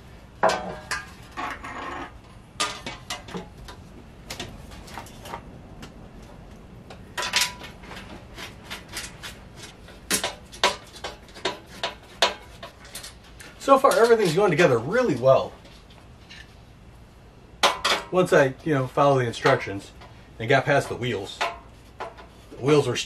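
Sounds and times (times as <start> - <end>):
metal table legs clattering: 0.4 - 5.4, 6.9 - 13.2, 17.6 - 18.2.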